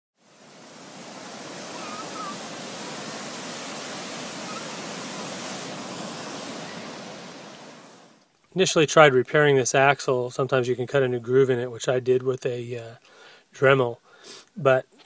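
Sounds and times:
surf washing over sand: 0.2 - 8.2.

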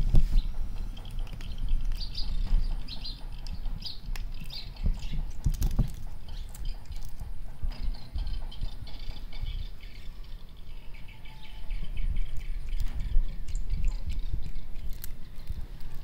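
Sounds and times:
small birds chirping: 0.0 - 16.0
cat crunching dry food: 4.1 - 7.4, 12.2 - 16.0.

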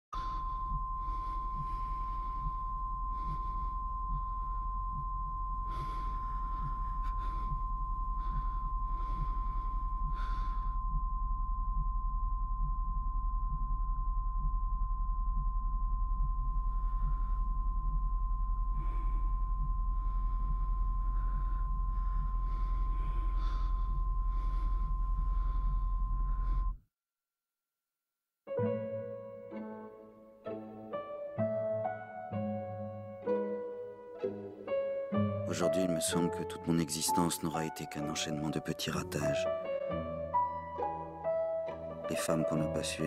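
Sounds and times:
person breathing heavily: 0.2 - 11.0, 16.7 - 26.8
faint low pulsing: 0.2 - 26.8
steady high-pitched tone: 0.2 - 26.8.

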